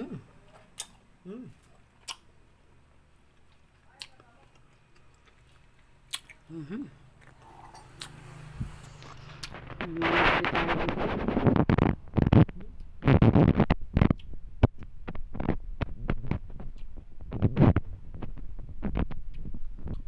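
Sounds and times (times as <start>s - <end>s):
phone microphone handling noise: 8.6s - 20.0s.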